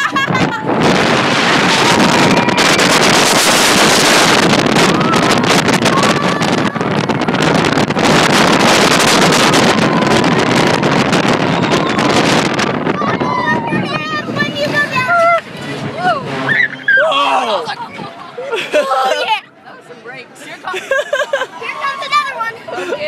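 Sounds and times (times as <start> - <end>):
wind buffeting microphone: 0.0 - 19.4
roller coaster rushing rumble: 0.0 - 23.0
riders screaming: 1.8 - 7.7, 15.9 - 17.8.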